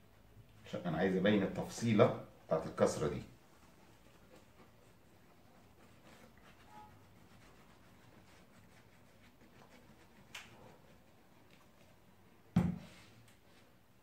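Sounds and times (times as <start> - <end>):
glue dabbing and rustling: 2.4 - 13.7
bottle knocking on table: 12.6 - 12.8.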